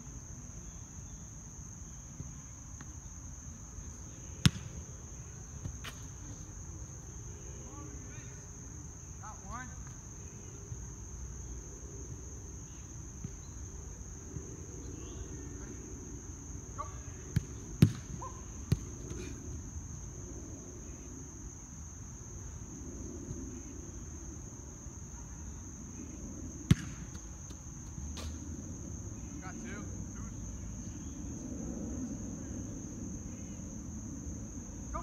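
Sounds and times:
high drone of insects: 0.0 - 35.0
soccer ball thumps: 4.4 - 4.7, 17.3 - 19.0, 26.7 - 27.2.

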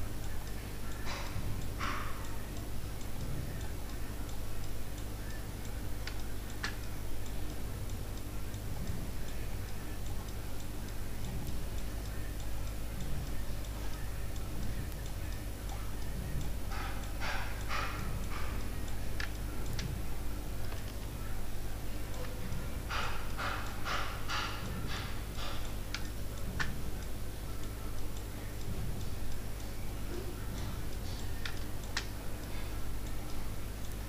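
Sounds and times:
steady low hum: 0.0 - 34.0
computer mouse clicks: 31.0 - 32.1.

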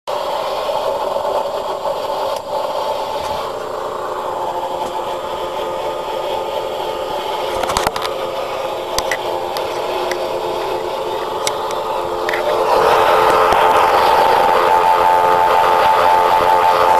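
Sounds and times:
hiss: 0.1 - 16.9
clicks: 8.9 - 12.6.

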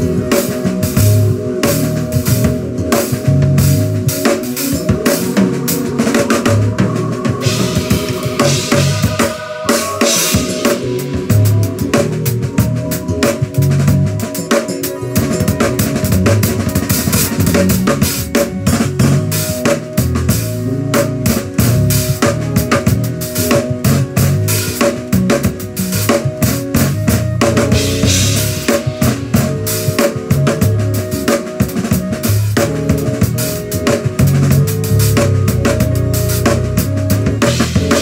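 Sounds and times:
accompanying music with held notes: 0.0 - 38.0
drum kit groove: 0.0 - 38.0.

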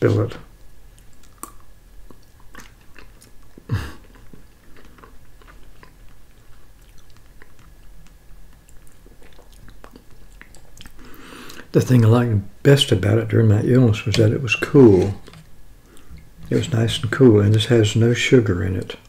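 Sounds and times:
person eating wet mouth sounds: 0.9 - 11.7, 14.9 - 17.6.

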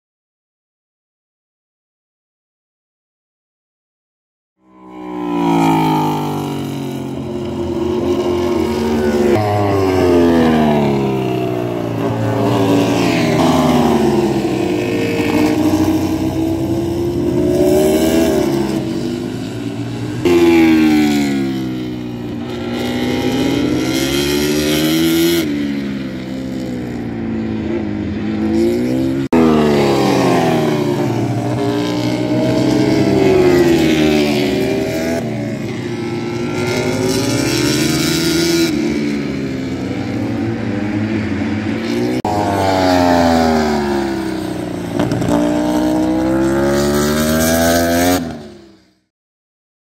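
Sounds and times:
race motorcycles passing at speed: 4.6 - 49.0.

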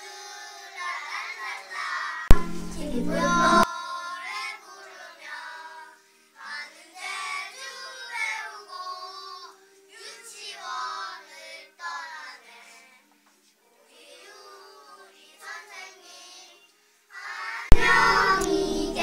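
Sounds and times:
children singing in unison: 0.0 - 13.0, 13.7 - 19.0
instrumental accompaniment: 2.3 - 3.7, 17.7 - 19.0.

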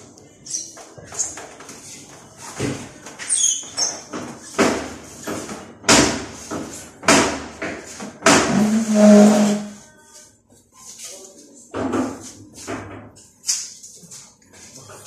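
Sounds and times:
knocks and scrapes: 0.5 - 9.9.

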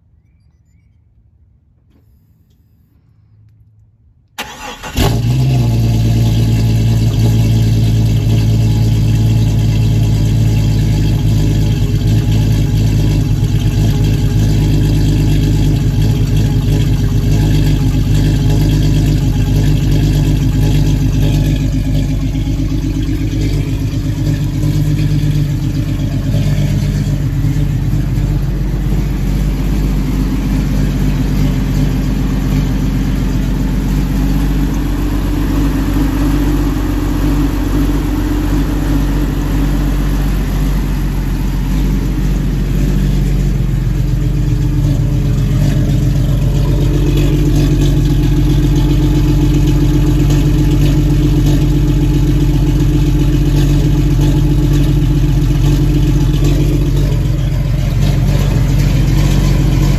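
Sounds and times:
car engine cranking: 3.6 - 59.9
car engine fast idle: 4.4 - 59.9.

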